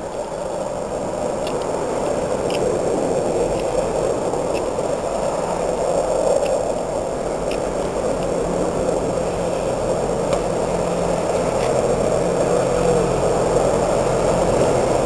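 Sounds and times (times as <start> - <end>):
steady rushing noise: 0.0 - 15.0
faint ticks: 1.3 - 6.8, 7.4 - 9.0, 9.6 - 10.5.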